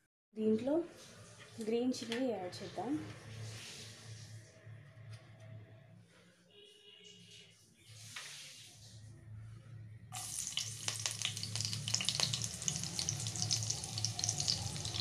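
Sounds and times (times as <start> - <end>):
chillies sizzling in hot fat: 10.2 - 15.0.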